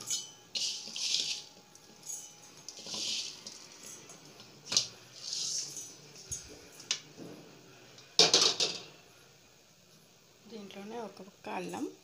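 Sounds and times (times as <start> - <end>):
spices rattling over metal pan: 0.0 - 4.2.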